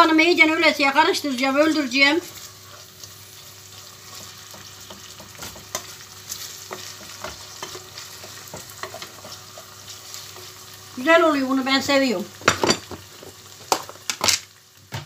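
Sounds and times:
food sizzling in a pot: 0:00.0 - 0:15.0
wooden spoon scraping a pot: 0:03.7 - 0:10.5.

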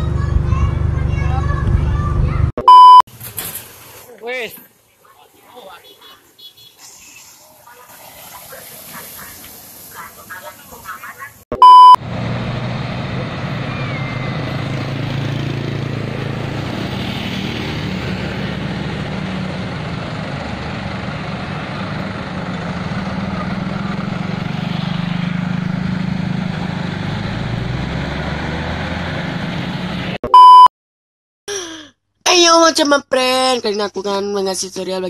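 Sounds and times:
traffic engines humming: 0:00.0 - 0:02.5, 0:03.1 - 0:30.2
short loud beep: 0:02.6 - 0:03.0, 0:11.5 - 0:12.0, 0:30.2 - 0:30.7.

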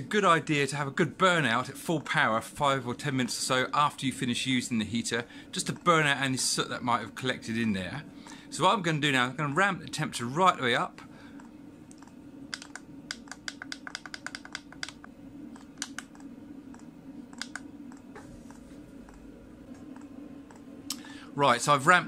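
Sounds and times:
heater humming: 0:00.0 - 0:22.0
push buttons clicking: 0:11.9 - 0:20.6.

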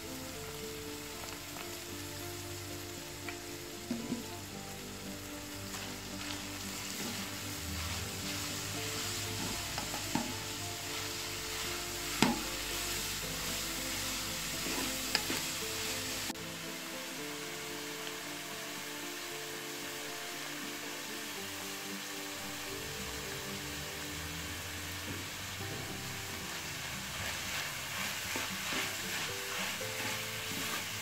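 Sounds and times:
food sizzling in a metal pan: 0:00.0 - 0:31.0
wooden spoon knocking on pan: 0:03.9 - 0:04.4, 0:09.3 - 0:10.6, 0:12.2 - 0:12.6.

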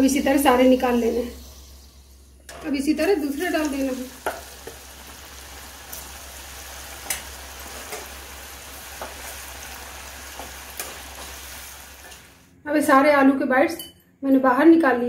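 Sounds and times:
potatoes deep-frying in oil: 0:00.0 - 0:12.5
oil crackles: 0:03.3 - 0:12.5.

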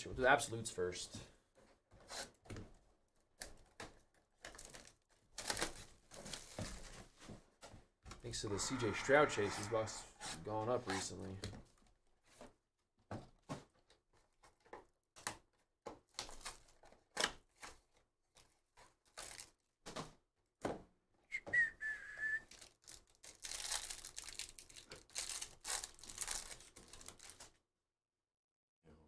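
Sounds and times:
plastic wrapper tearing and crinkling: 0:04.4 - 0:07.0, 0:16.1 - 0:19.7, 0:22.4 - 0:27.6
high whistle-like note: 0:21.3 - 0:22.4.

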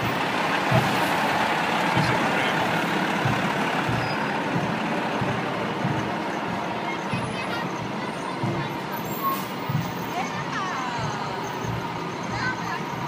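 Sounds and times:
fire engine diesel rumble: 0:00.0 - 0:13.0
tyre and road noise: 0:00.0 - 0:13.0.

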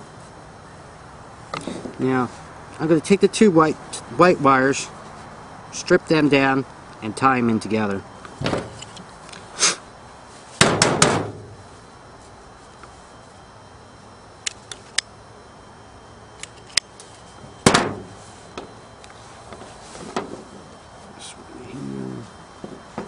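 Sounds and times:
hand tools and wire clicking: 0:16.4 - 0:17.1.

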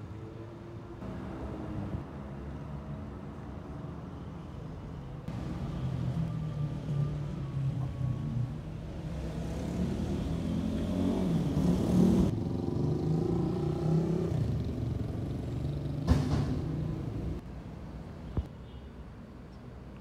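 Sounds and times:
cars driving past: 0:01.0 - 0:03.8, 0:08.8 - 0:17.4.

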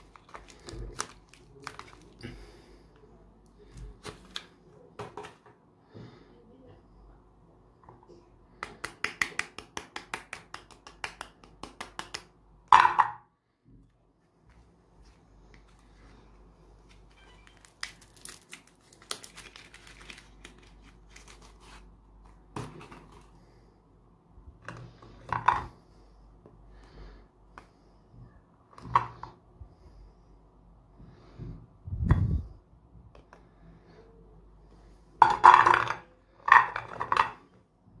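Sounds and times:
wrapper tearing and crinkling: 0:00.0 - 0:02.2, 0:17.4 - 0:21.8.

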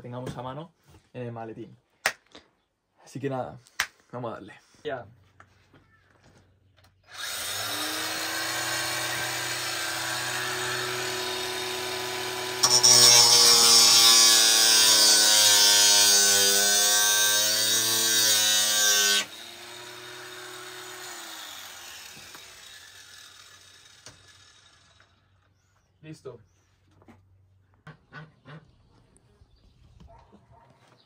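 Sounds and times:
grinder cutting metal: 0:07.1 - 0:25.2
angle grinder whining: 0:07.1 - 0:25.4.

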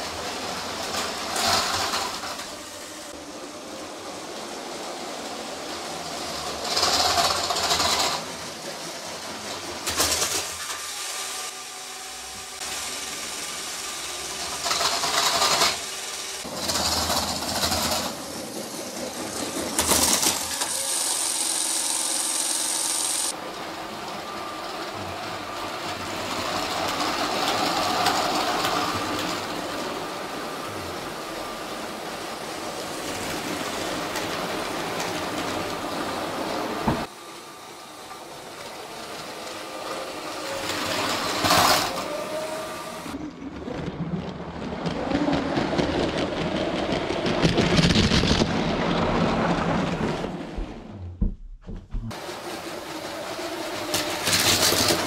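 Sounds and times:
wheel clatter on plastic track: 0:00.0 - 0:11.6, 0:12.2 - 0:37.4, 0:38.0 - 0:51.0, 0:52.0 - 0:55.0
toy train motor whir: 0:00.2 - 0:03.4, 0:05.6 - 0:36.6, 0:37.7 - 0:43.2, 0:52.6 - 0:55.0.

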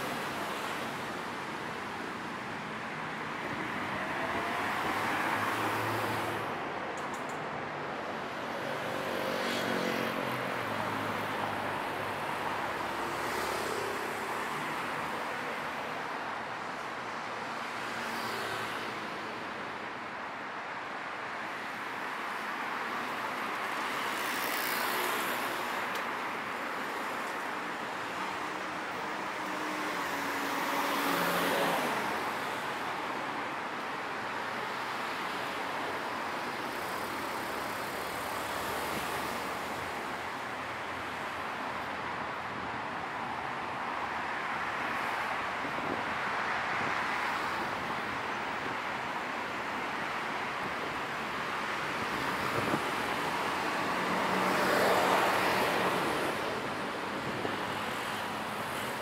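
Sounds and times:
cars passing close by: 0:07.6 - 0:16.7, 0:21.6 - 0:59.0.

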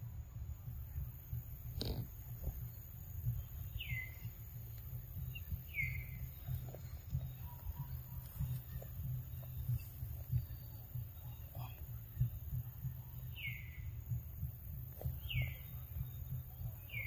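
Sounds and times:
steady low rumble: 0:00.0 - 0:17.0
downslurred bird calls: 0:03.2 - 0:14.1, 0:14.7 - 0:17.0.

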